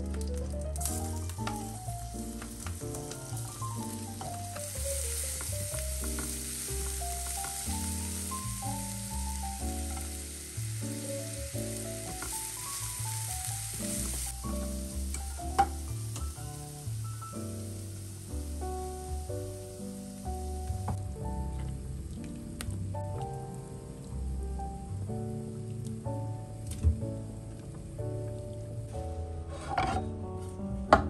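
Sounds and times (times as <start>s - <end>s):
melodic music: 0.0s - 27.3s
paste sizzling in hot oil: 0.8s - 21.0s.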